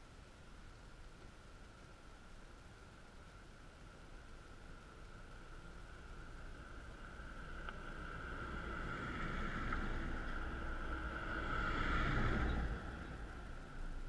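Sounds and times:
car driving on gravel: 5.2 - 14.0.

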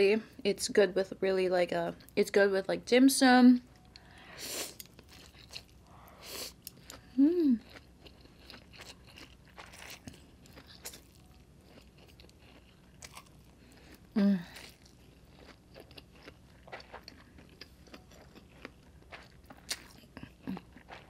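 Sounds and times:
person humming: 7.1 - 7.6, 14.2 - 14.6.

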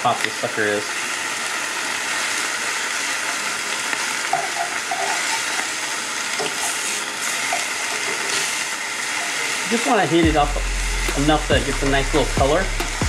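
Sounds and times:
ham sizzling in skillet: 0.0 - 13.0
metal tongs scraping pan: 4.3 - 5.7, 6.4 - 8.6.

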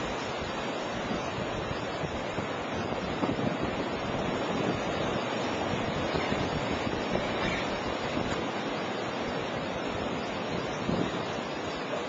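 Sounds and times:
wind blowing through trees: 0.0 - 12.0.

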